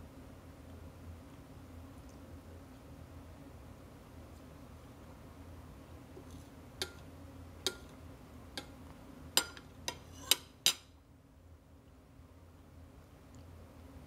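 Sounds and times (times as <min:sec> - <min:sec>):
metal spoon clinking on plate: 0:06.8 - 0:07.1, 0:07.7 - 0:08.0, 0:09.4 - 0:10.9.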